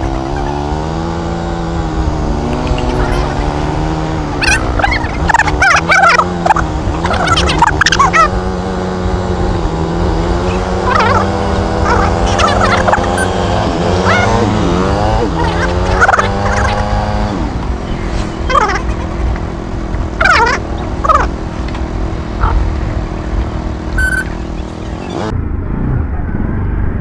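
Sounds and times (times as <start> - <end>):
motorcycle engine rumbling: 0.0 - 27.0
wavering cries: 4.4 - 8.3, 10.8 - 16.8
high beep: 24.0 - 24.3.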